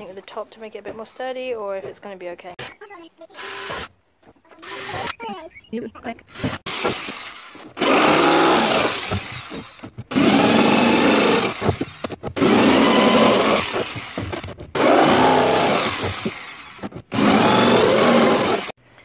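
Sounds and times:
electric jigsaw cutting plastic: 0:03.4 - 0:03.9, 0:04.6 - 0:05.2, 0:06.3 - 0:18.8.

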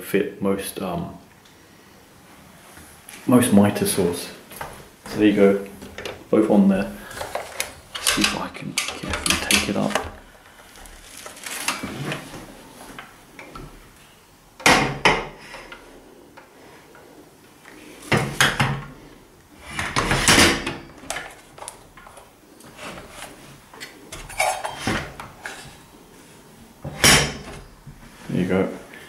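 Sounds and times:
metal stand clunking and rattling: 0:07.2 - 0:10.3.

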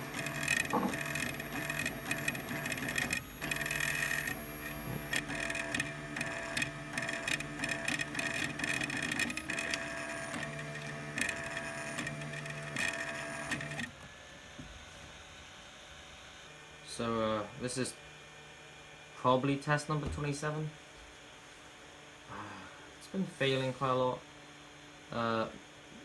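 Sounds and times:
stepper motors whining and buzzing: 0:00.0 - 0:14.0.

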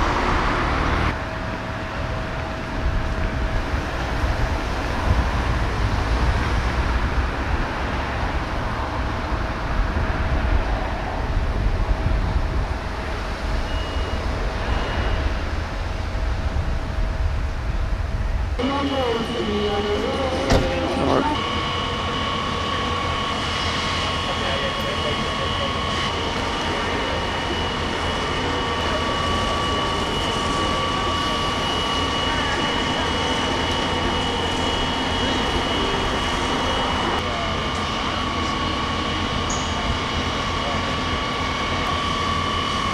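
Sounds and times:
diesel engines and pumps droning: 0:00.0 - 0:42.9
distant traffic: 0:00.0 - 0:42.9
high whine: 0:00.0 - 0:42.9
short high beeps: 0:13.6 - 0:15.4.

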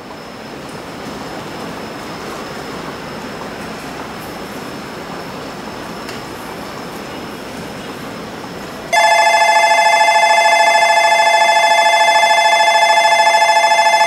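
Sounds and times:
electronic platform bell trill: 0:08.9 - 0:14.0.

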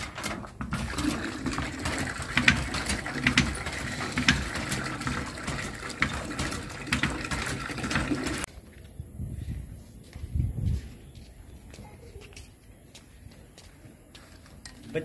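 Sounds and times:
hand pump clanking: 0:00.0 - 0:08.5
water gushing into metal bucket: 0:00.2 - 0:08.5.

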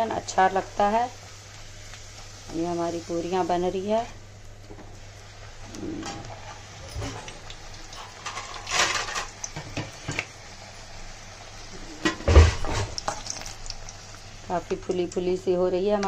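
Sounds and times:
bread sizzling in hot oil: 0:00.0 - 0:15.6.

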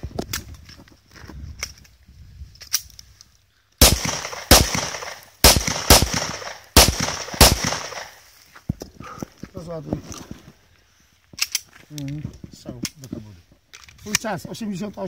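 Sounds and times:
pistol shots: 0:03.8 - 0:08.2.

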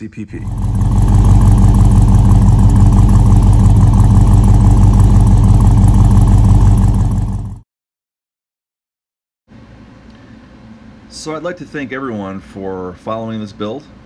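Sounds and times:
engine idling at tailpipe: 0:00.3 - 0:07.6.

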